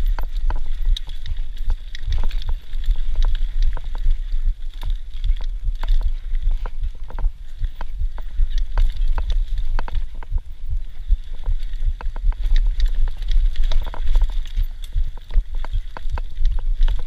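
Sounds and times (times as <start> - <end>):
mountain bike rattling and knocking: 0.0 - 17.0
wind rumble on microphone: 0.0 - 17.0.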